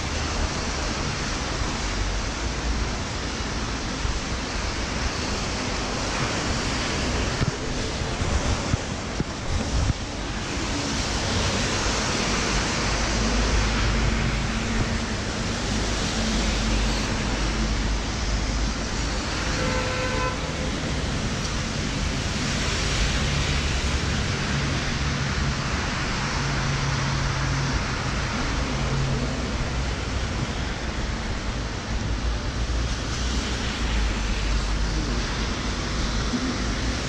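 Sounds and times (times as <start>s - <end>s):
low traffic rumble: 0.0s - 37.0s
rain on plastic umbrella: 0.1s - 37.0s
vehicle horn toot: 19.5s - 20.7s.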